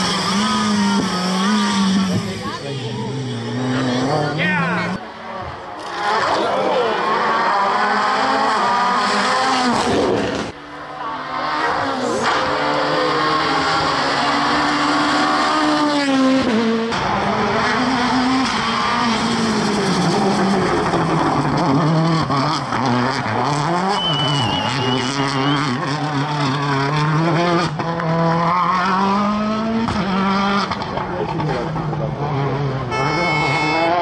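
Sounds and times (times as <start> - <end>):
rally car engines revving: 0.0 - 34.0.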